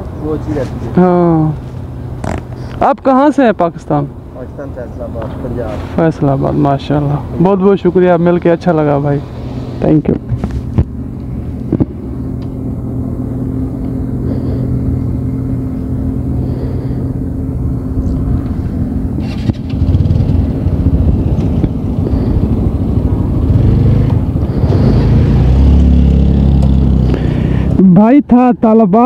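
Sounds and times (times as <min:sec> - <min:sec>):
motorcycle engine idling: 0:10.9 - 0:27.8
motorcycle pulling away: 0:11.4 - 0:27.8.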